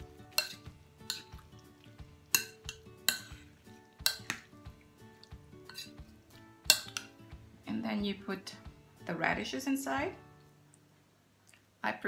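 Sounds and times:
soft background music: 0.0s - 12.0s
spoon clinking in ceramic bowl: 0.3s - 1.4s, 2.3s - 4.5s, 5.7s - 6.0s, 6.6s - 7.1s.

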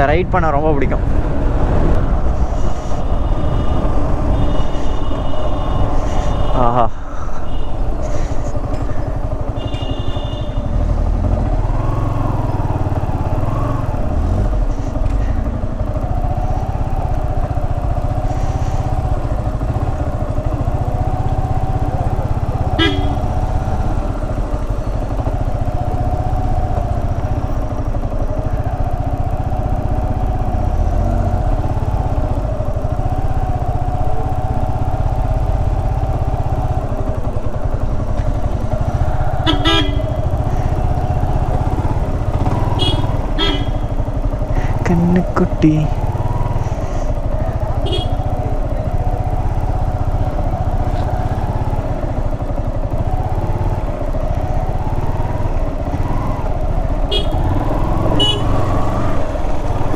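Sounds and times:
motorcycle engine at low speed: 0.0s - 59.9s
vehicle horn: 3.0s - 6.8s, 9.5s - 10.8s, 22.5s - 23.5s, 39.4s - 40.3s, 42.5s - 44.0s, 47.7s - 48.4s, 57.0s - 58.9s.

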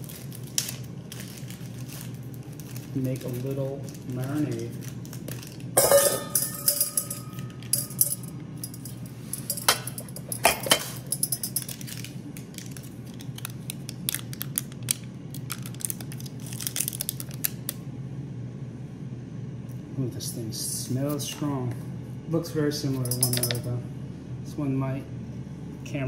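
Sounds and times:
spoon and jars clinking: 5.8s - 11.8s, 22.9s - 23.7s.

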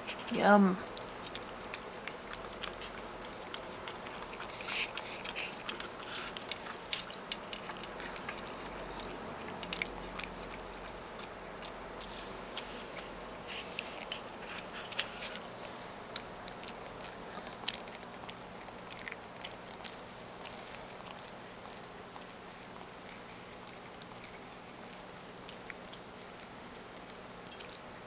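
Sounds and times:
cat licking: 0.0s - 28.0s.

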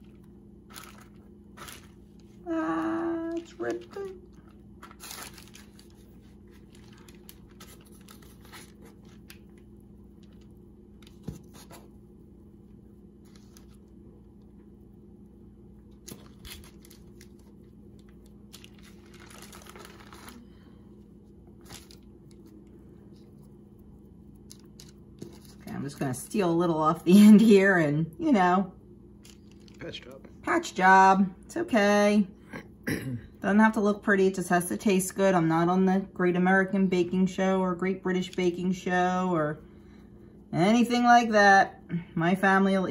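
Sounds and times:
parchment paper rustling: 0.0s - 12.0s, 13.2s - 14.0s, 15.9s - 23.6s, 24.4s - 27.0s, 29.2s - 30.0s
steady low hum: 0.0s - 42.9s.

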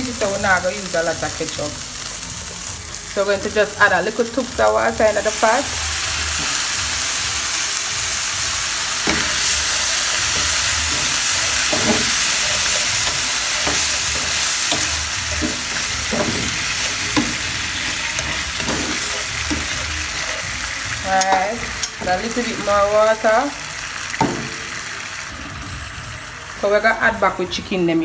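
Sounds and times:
frying pan sizzling: 0.0s - 28.0s
utensil knocking against pan: 10.2s - 17.5s.

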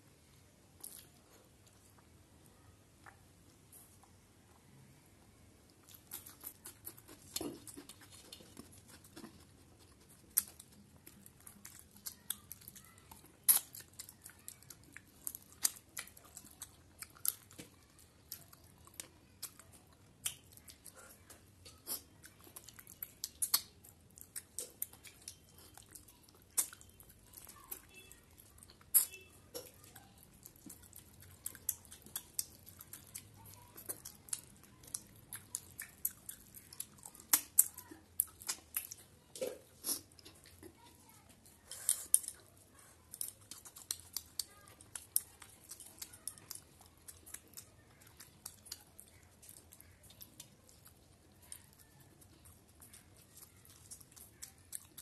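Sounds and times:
person chewing with lip smacks: 0.8s - 2.1s, 5.7s - 55.0s.

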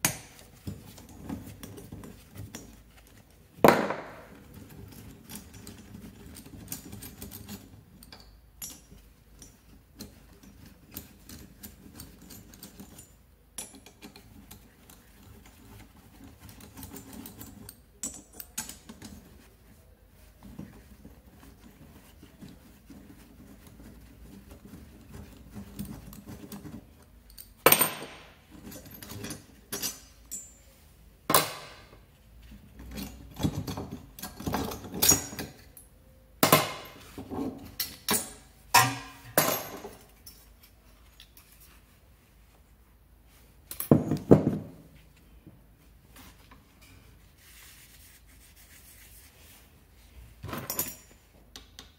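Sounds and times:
sharp metallic knocks: 38.7s - 39.8s.

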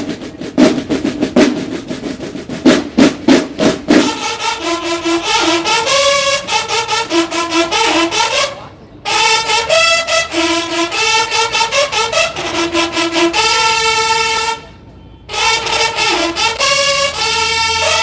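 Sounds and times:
snare drums rolling: 0.0s - 8.6s, 15.3s - 18.0s
bugles playing march: 3.4s - 14.7s, 15.3s - 18.0s.

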